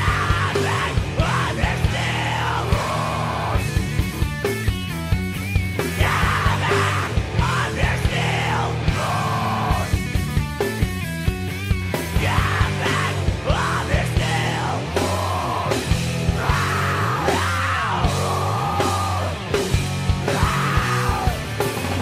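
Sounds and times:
singer yelling: 0:00.0 - 0:03.7, 0:05.9 - 0:10.0, 0:12.1 - 0:19.6, 0:20.2 - 0:21.7
punk rock band playing: 0:00.0 - 0:22.0.

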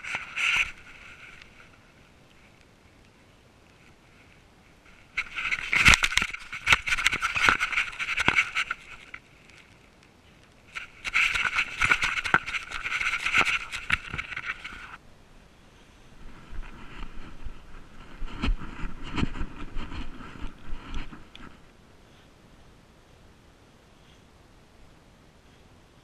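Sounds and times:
scraping and knocking on camera housing: 0:05.1 - 0:09.2, 0:10.7 - 0:15.0.

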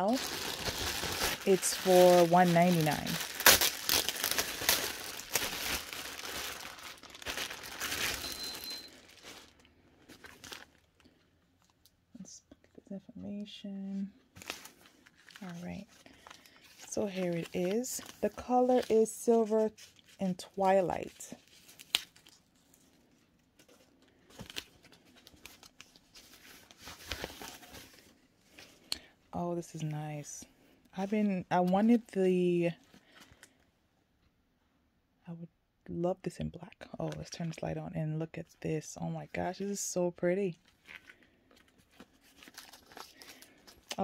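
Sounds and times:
packing paper crinkling: 0:00.0 - 0:11.7, 0:14.3 - 0:20.2, 0:21.0 - 0:28.8, 0:40.6 - 0:44.0.

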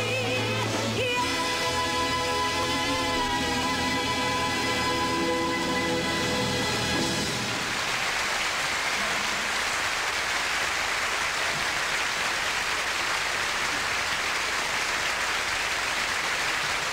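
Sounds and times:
audience applauding: 0:05.6 - 0:16.9.

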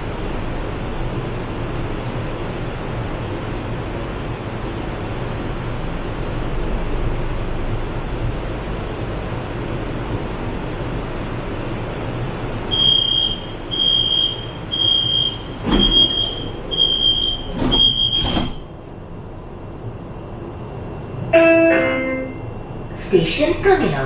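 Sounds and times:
high warning beeps: 0:12.7 - 0:18.6.

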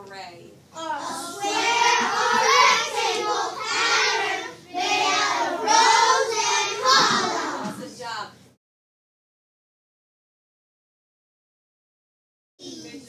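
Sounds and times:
children chanting together: 0:00.8 - 0:07.8.

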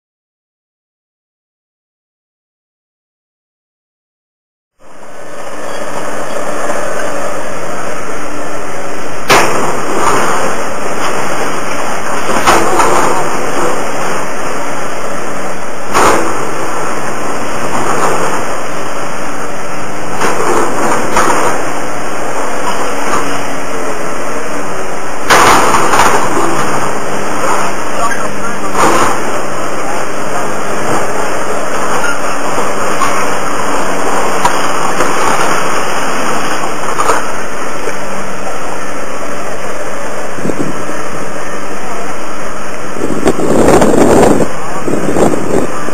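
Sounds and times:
excavator running: 0:04.8 - 0:45.9
debris crashing: 0:09.2 - 0:23.6, 0:25.2 - 0:37.8.

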